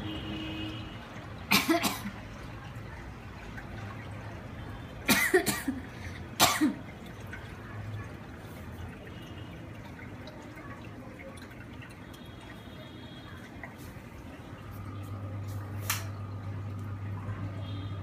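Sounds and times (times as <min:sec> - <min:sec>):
person coughing: 0:01.5 - 0:02.1, 0:05.1 - 0:05.8, 0:06.4 - 0:06.8
low steady hum: 0:09.0 - 0:18.0.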